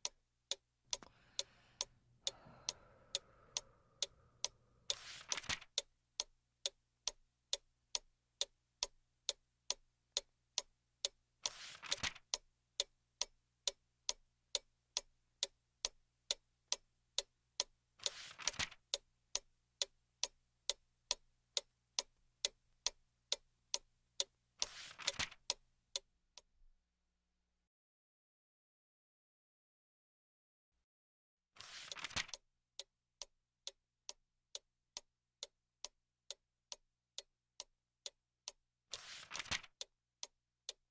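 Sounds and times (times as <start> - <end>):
mechanical clock ticking: 0.0 - 26.1
book page turning: 4.9 - 5.7, 11.5 - 12.2, 18.0 - 18.8, 24.6 - 25.4, 31.6 - 32.3, 39.0 - 39.7.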